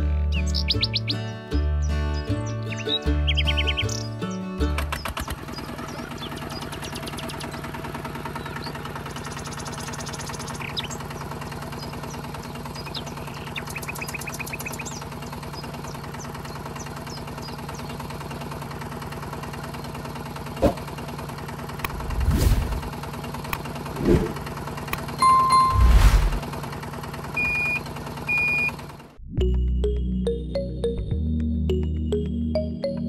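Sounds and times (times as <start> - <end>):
tractor engine running: 0.0 - 29.2
faint bird chirps: 5.0 - 18.0.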